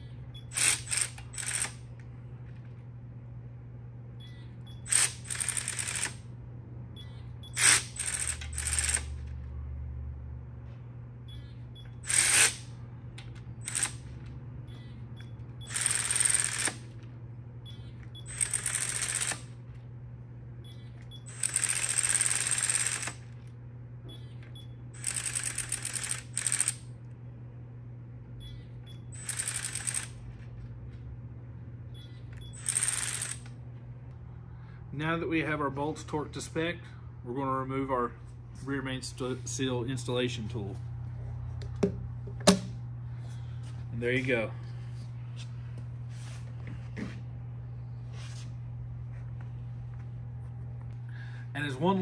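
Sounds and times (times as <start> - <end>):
steady low hum: 0.0 - 52.0
torque wrench ratchet clicking: 0.5 - 1.8, 4.9 - 6.2, 7.6 - 9.2, 12.0 - 12.7, 13.6 - 14.0, 15.6 - 16.8, 18.3 - 19.5, 21.3 - 23.2, 25.0 - 26.8, 29.2 - 30.2, 32.6 - 33.5.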